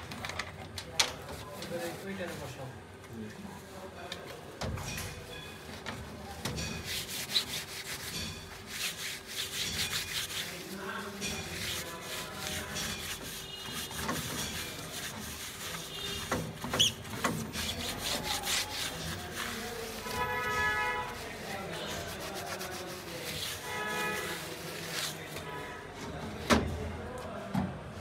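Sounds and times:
scratchy rubbing on wood: 6.6s - 25.4s.

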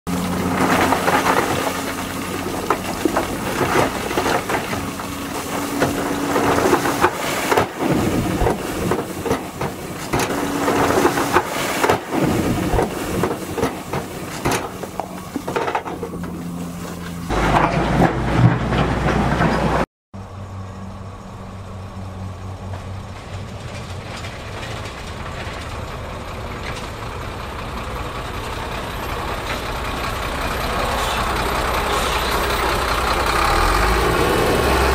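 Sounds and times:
stones clattering off truck beds: 0.1s - 19.9s, 22.7s - 26.0s
diesel truck engines running: 0.1s - 34.9s.

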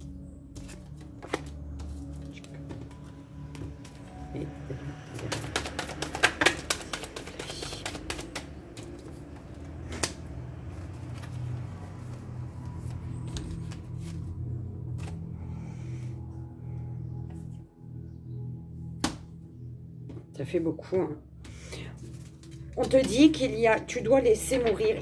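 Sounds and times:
cards being shuffled: 0.6s - 15.5s, 21.4s - 23.3s.

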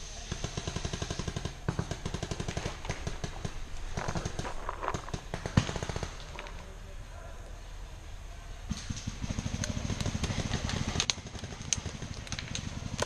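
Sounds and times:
paintball markers firing: 0.3s - 6.7s.

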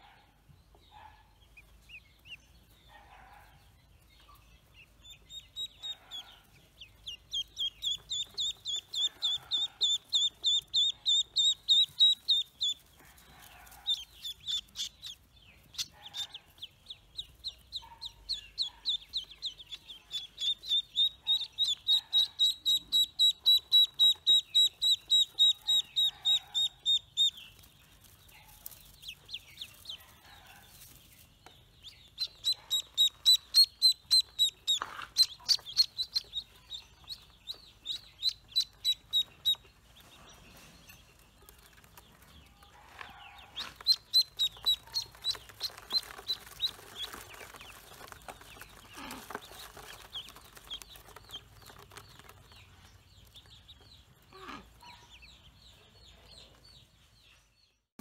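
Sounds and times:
ducklings peeping: 0.0s - 57.8s.

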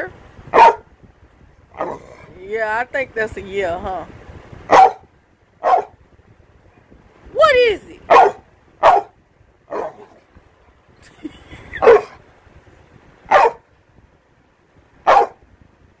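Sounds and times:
dog barking: 0.5s - 0.9s, 4.7s - 6.0s, 8.1s - 10.2s, 11.8s - 12.2s, 13.3s - 13.6s, 15.0s - 15.4s.

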